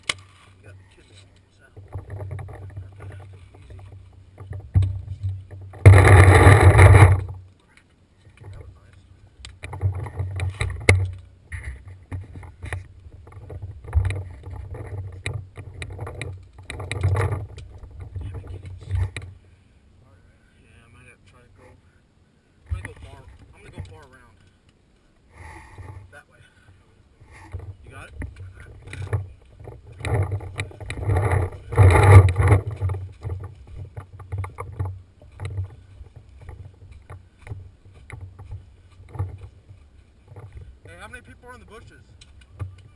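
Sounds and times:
sharp clicks and knocks: 0:00.0 - 0:00.4, 0:01.7 - 0:19.4, 0:27.4 - 0:42.9
equipment scraping against rock: 0:00.0 - 0:07.5, 0:08.2 - 0:19.4, 0:22.7 - 0:24.6, 0:25.3 - 0:26.2, 0:27.2 - 0:42.9.

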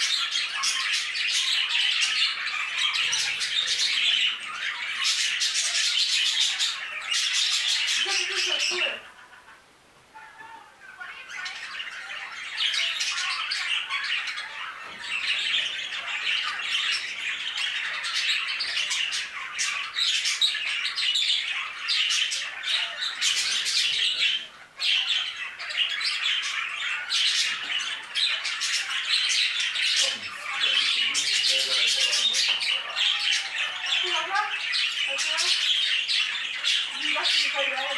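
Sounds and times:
budgerigars chattering: 0:00.0 - 0:09.6, 0:10.2 - 0:37.9.

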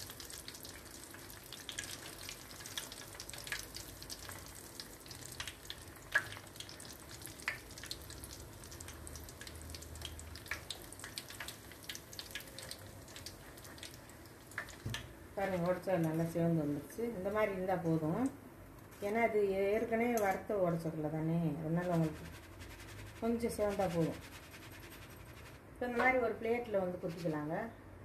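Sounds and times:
frying sizzle with crackling pops: 0:00.0 - 0:16.4.

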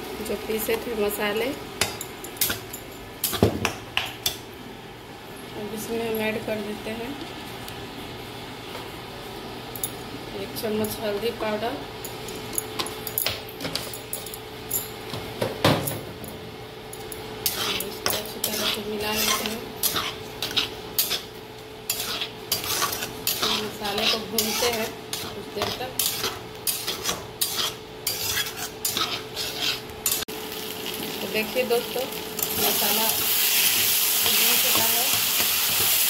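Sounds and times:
wooden spatula scraping a pan: 0:17.4 - 0:21.3, 0:21.9 - 0:29.9
paste sizzling in oil: 0:17.4 - 0:31.8, 0:32.4 - 0:36.0.

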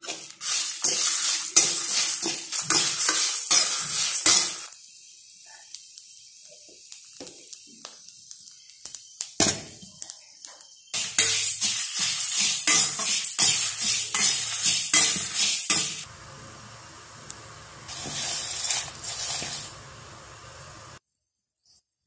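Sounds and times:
metal ladle scraping dry seeds: 0:00.0 - 0:04.7, 0:11.0 - 0:16.1, 0:17.9 - 0:19.8.

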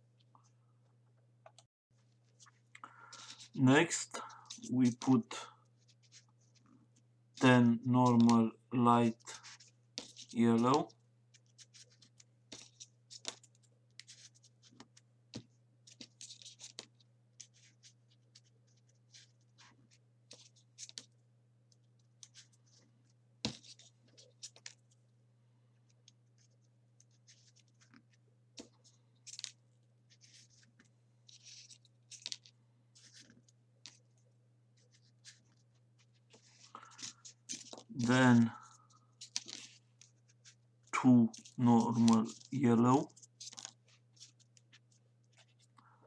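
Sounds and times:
paper pieces rustling and clicking: 0:28.6 - 0:29.6, 0:30.2 - 0:34.0, 0:34.9 - 0:40.6, 0:41.3 - 0:45.7.

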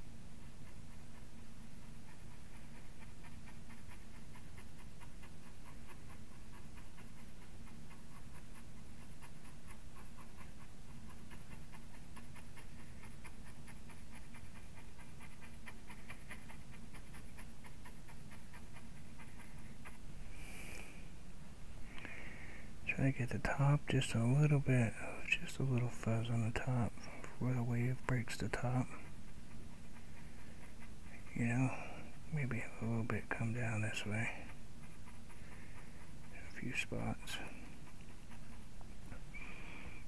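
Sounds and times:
brush tapping paint: 0:30.4 - 0:39.2.

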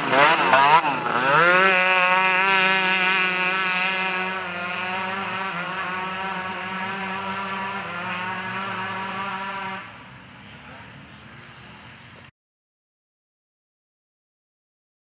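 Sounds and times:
quad bike engines at high revs: 0:00.0 - 0:11.0.

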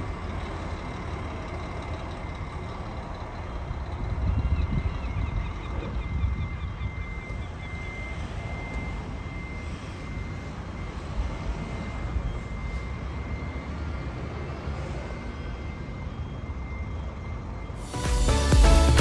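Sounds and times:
diesel bus engine rumbling: 0:00.0 - 0:19.0.

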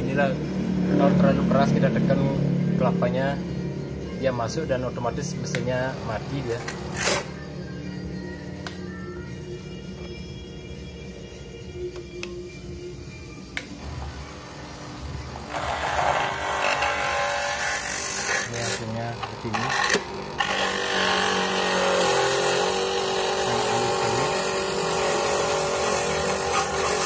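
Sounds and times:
electric coconut grater motor whine: 0:13.8 - 0:27.0
grinding rasp of grating: 0:15.2 - 0:27.0.

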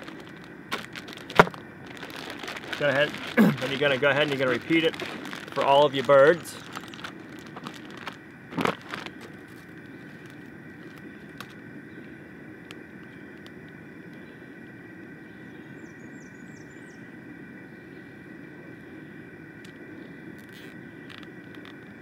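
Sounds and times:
plastic bag crinkling: 0:00.0 - 0:11.6
background hum: 0:00.0 - 0:22.0.

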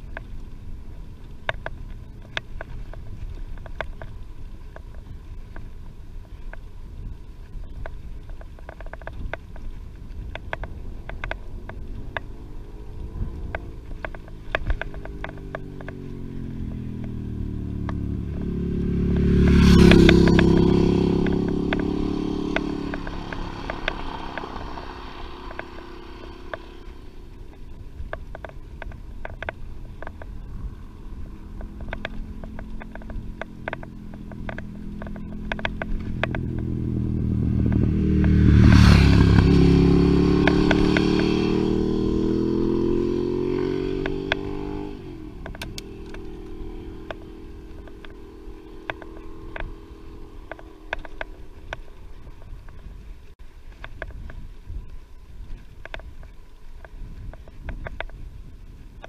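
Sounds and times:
bicycle clicks and rattles: 0:00.0 - 0:39.7, 0:40.3 - 0:59.0
another vehicle engine: 0:08.6 - 0:54.2
vehicle engine passing by: 0:11.5 - 0:27.6, 0:29.4 - 0:52.4.

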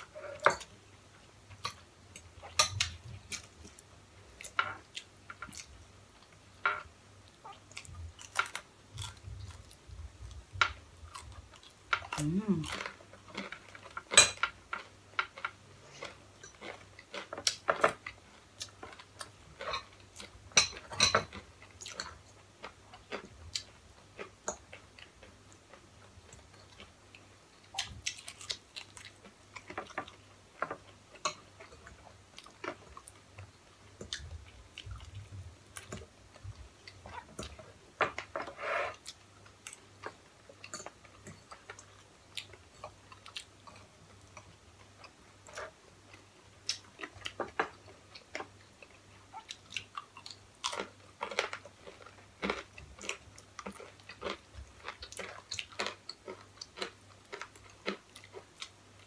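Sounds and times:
people chewing and biting food: 0:07.4 - 0:59.0.

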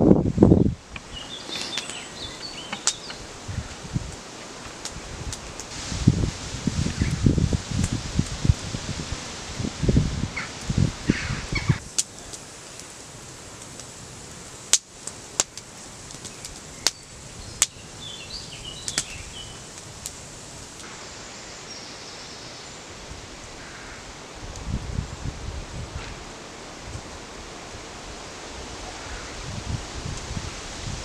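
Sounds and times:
burning wood popping: 0:00.0 - 0:21.3
campfire crackling: 0:00.0 - 0:31.0
steady outdoor hiss: 0:00.0 - 0:31.0.

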